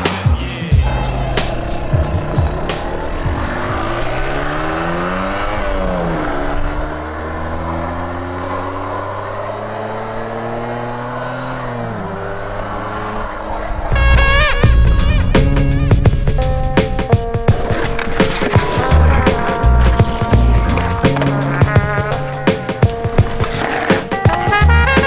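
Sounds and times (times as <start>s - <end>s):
music: 0.0s - 5.0s, 13.9s - 25.0s
car engine accelerating: 0.8s - 23.8s.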